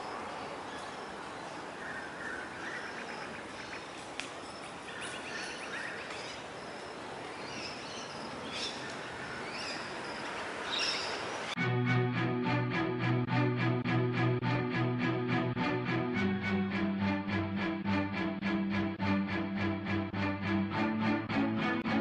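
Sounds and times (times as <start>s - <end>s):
outdoor background noise: 0.0s - 11.6s
small birds chirping: 0.0s - 11.6s.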